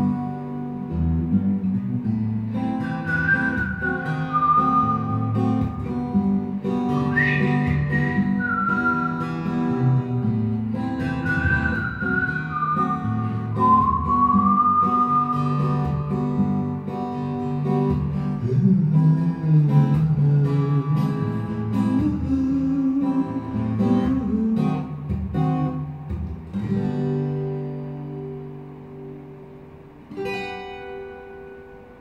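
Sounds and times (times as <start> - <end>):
acoustic guitar playing: 0.0 - 32.0
person whistling melody: 2.8 - 16.6.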